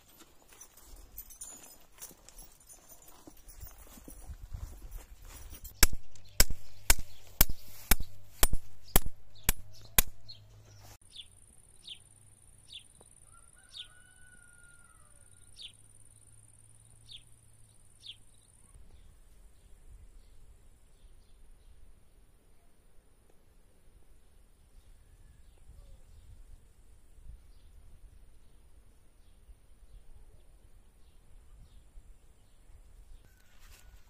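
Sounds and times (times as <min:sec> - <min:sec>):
sharp clicks: 0:05.7 - 0:10.3.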